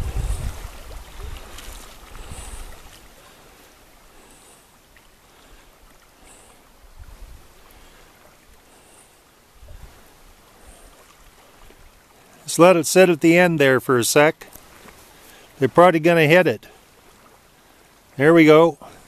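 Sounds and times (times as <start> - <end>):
wind buffeting microphone: 0.0 - 3.0, 6.9 - 7.5, 9.6 - 10.0
river water rushing: 0.0 - 19.0.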